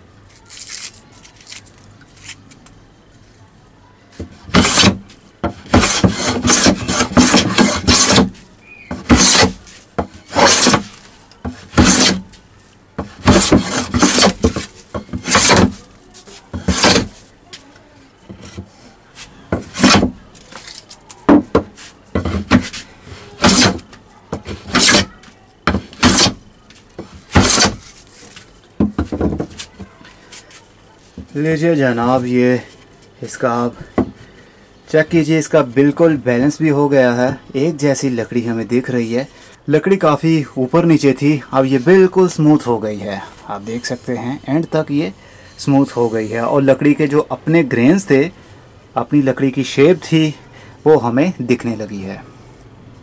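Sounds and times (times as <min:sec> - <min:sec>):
hand plane shaving wood: 0:04.5 - 0:05.0, 0:05.6 - 0:08.3, 0:08.9 - 0:09.6, 0:10.3 - 0:10.9, 0:11.7 - 0:12.2, 0:13.1 - 0:15.8, 0:16.6 - 0:17.1, 0:19.6 - 0:20.0, 0:23.4 - 0:23.8, 0:24.5 - 0:25.1, 0:25.8 - 0:26.4, 0:27.3 - 0:27.8.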